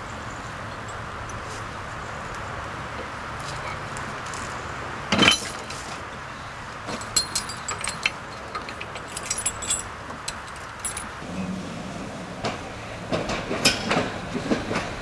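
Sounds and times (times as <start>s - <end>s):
metal coupling clanking: 5.1s - 5.8s, 6.9s - 11.2s
chain rattling clinks: 6.9s - 11.2s.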